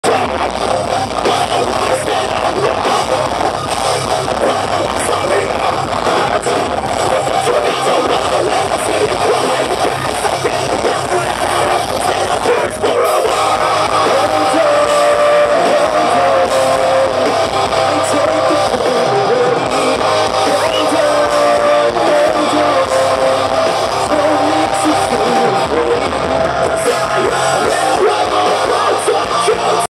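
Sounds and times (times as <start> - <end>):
person singing: 0.0 - 3.5, 4.1 - 29.9
drums: 0.0 - 29.9
electric guitars: 0.0 - 29.9.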